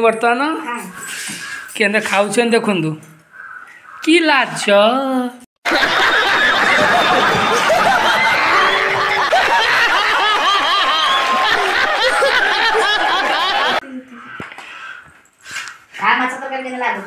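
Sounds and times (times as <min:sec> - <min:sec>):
audience laughing: 0:05.6 - 0:13.8
man laughing hard: 0:05.7 - 0:13.8.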